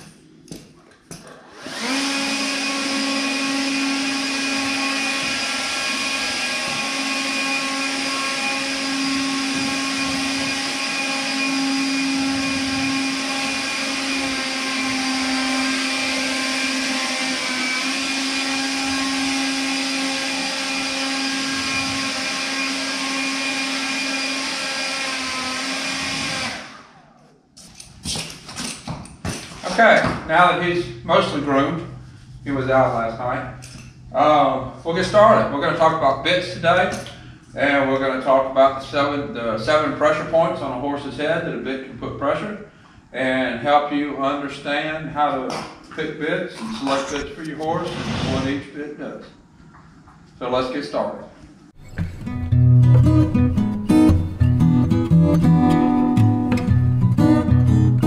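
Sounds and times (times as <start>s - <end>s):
grooming machine humming: 1.2s - 27.2s.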